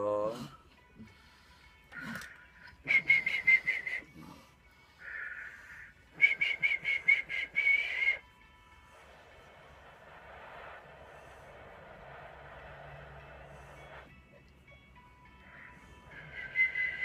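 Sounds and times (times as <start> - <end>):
breathy blow: 0.4 - 14.2, 15.3 - 17.0
man whistling pulsed whistles: 2.6 - 9.4, 15.5 - 17.0.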